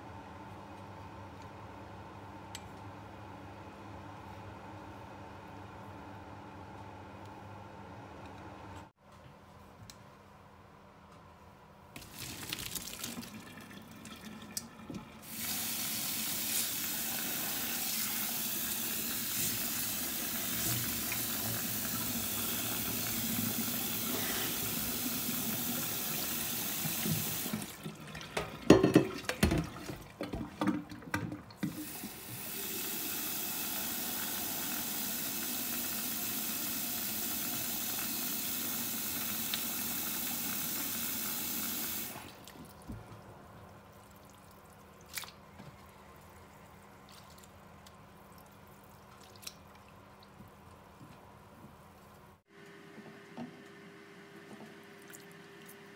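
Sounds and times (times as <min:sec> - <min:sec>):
tap water running into colander: 0:12.0 - 0:43.0
colander knocking in metal pot: 0:28.7 - 0:29.7.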